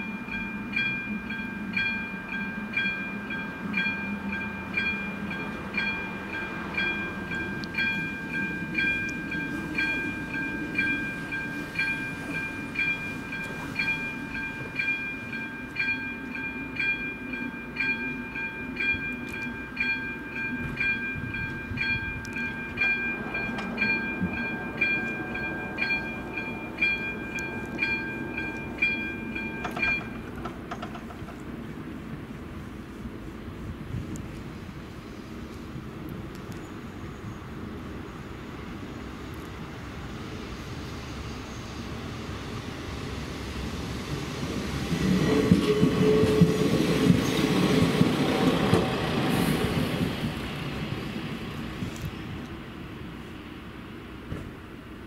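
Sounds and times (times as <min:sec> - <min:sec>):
level crossing bell ringing: 0:00.0 - 0:30.2.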